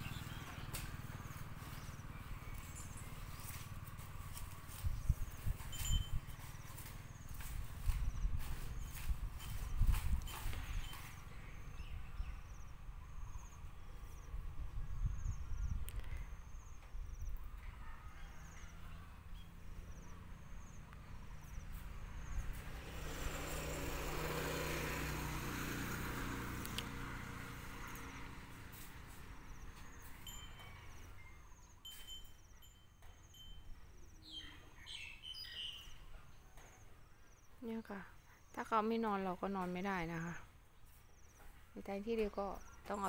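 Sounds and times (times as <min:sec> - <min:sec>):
vehicle passing: 0:00.0 - 0:05.5, 0:18.5 - 0:31.1.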